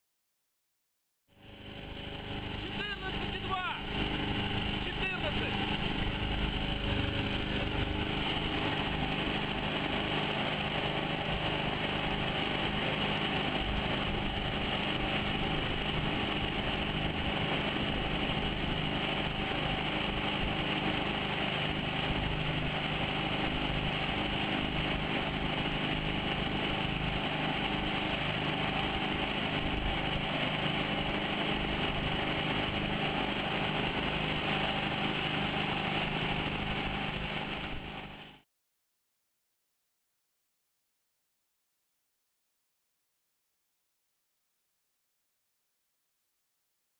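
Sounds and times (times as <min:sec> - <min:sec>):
outboard boat engine running: 0:01.3 - 0:38.4.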